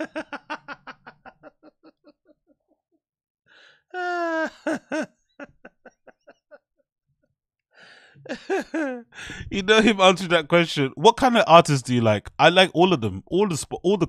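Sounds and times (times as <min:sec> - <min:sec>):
man laughing hard: 0:00.0 - 0:02.4, 0:04.0 - 0:06.6, 0:08.3 - 0:10.2.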